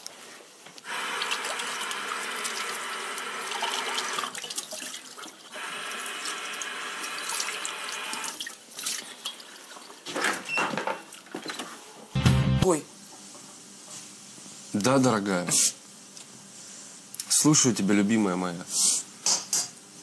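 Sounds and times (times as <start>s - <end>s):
tap water running into sink: 1.2s - 5.4s.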